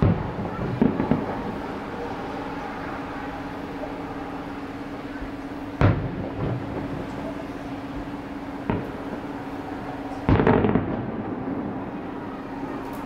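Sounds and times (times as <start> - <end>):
firework shells bursting: 0.0 - 2.2, 5.4 - 11.4.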